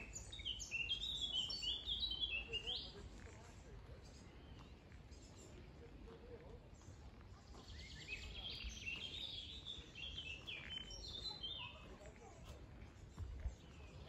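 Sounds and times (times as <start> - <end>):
songbird trilling: 0.0 - 3.0, 7.6 - 11.8
low background noise: 0.0 - 14.0.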